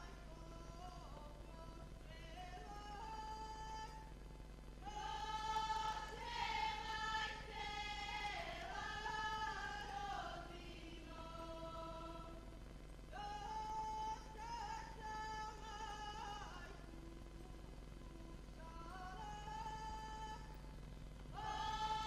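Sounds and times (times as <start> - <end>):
women singing a folk song: 4.8 - 12.5, 21.3 - 22.0.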